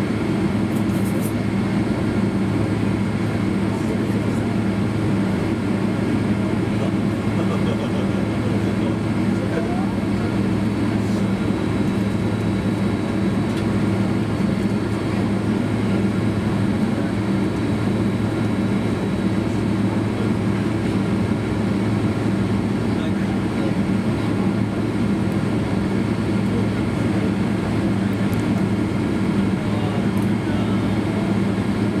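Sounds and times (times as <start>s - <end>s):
low engine hum: 0.0s - 32.0s.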